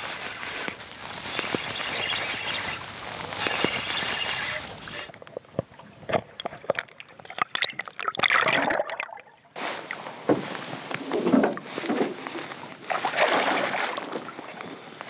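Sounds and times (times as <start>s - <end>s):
fish thrashing water splashes: 6.2s - 9.3s, 12.9s - 14.4s.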